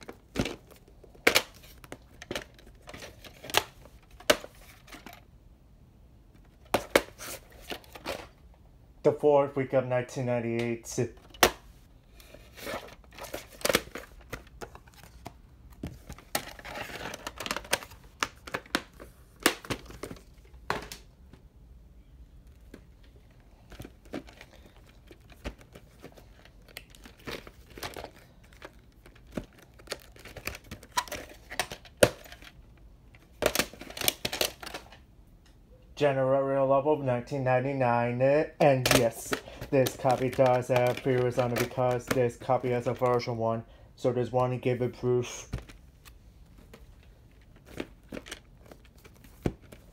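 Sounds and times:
hard plastic cases clicking: 0:38.8 - 0:43.2, 0:46.7 - 0:49.9.

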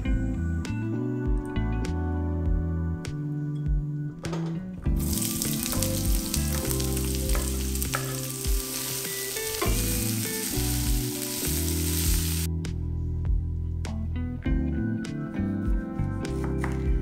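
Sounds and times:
onion sizzling in frying pan: 0:05.0 - 0:12.5.

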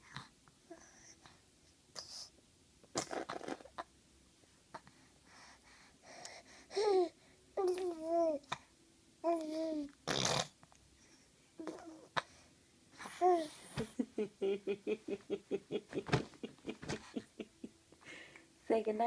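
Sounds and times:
baby blowing raspberry: 0:03.0 - 0:03.7, 0:10.0 - 0:10.6
baby cooing: 0:11.6 - 0:12.2
baby laughing: 0:13.7 - 0:17.7.

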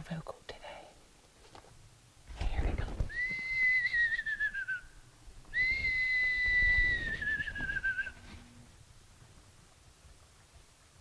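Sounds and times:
elk bugling whistle: 0:03.1 - 0:08.6.

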